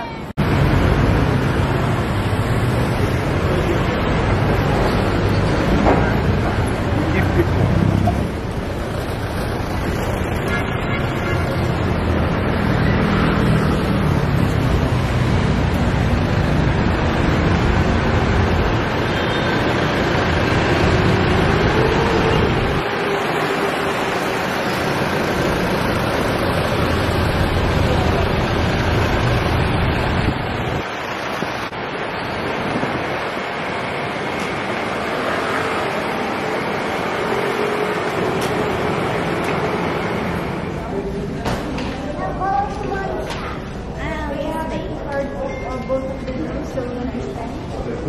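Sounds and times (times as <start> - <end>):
city street traffic: 0.0 - 48.0
wind buffeting microphone: 29.6 - 33.7.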